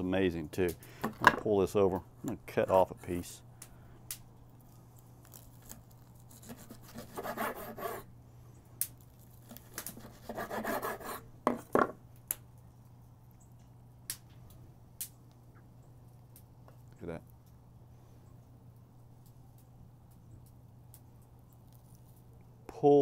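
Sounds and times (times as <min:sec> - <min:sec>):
knife sawing through ribs: 0:05.6 - 0:08.1, 0:09.5 - 0:11.2
knife knocking on wooden board: 0:11.4 - 0:12.0.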